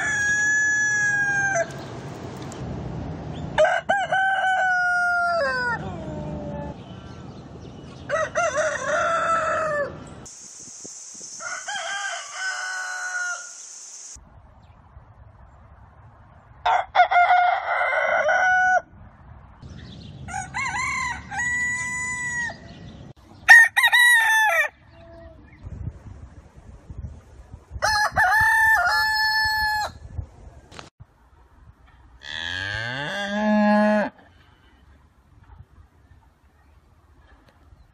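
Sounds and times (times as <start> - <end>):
roosters crowing: 0.0 - 1.9, 3.6 - 6.9, 8.0 - 10.1, 11.4 - 13.6, 16.6 - 19.0, 20.2 - 22.8, 23.4 - 25.0, 27.8 - 30.0, 32.2 - 34.2
steady high hiss: 10.2 - 14.2.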